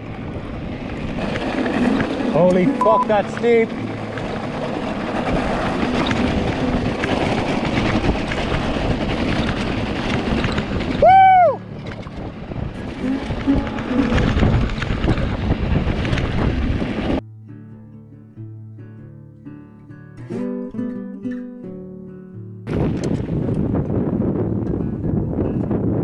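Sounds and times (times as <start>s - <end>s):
bike tyres rolling on gravel: 0.0s - 17.2s
wind buffeting microphone: 0.0s - 17.2s, 22.7s - 26.0s
quiet guitar music: 1.8s - 7.0s, 11.6s - 15.1s, 17.2s - 26.0s.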